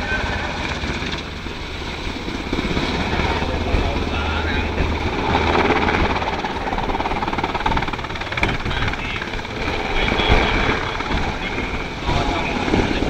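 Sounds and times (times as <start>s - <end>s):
helicopter rotor beating: 0.0s - 13.0s
turbine engine whine: 0.0s - 13.0s.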